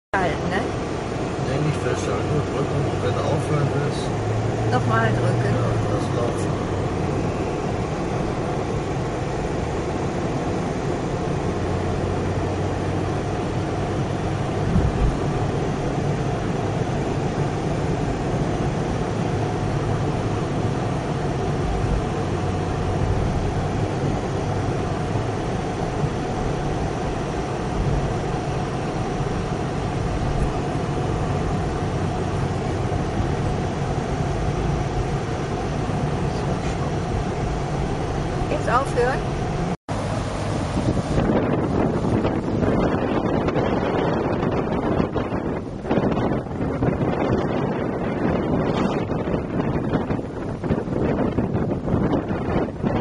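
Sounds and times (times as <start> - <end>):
engine and tyre rumble: 0.1 - 53.0
car bump: 14.6 - 15.3.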